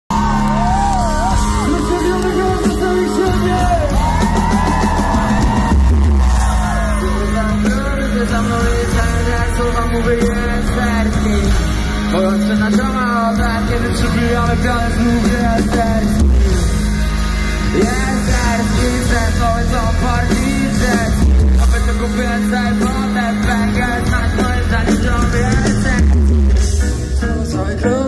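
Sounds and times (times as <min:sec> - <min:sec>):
crowd yelling: 0:00.1 - 0:11.2
backing track with deep bass: 0:00.1 - 0:28.0
man singing into microphone: 0:06.5 - 0:16.8, 0:17.6 - 0:28.0.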